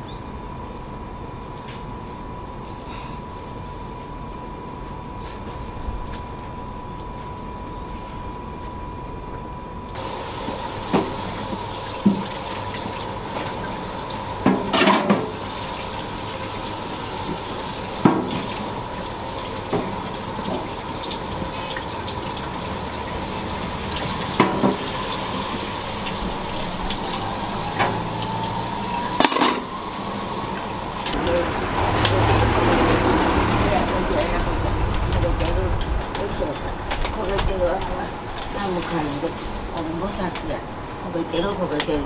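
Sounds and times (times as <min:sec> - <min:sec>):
tap water running into sink: 0:10.0 - 0:31.2.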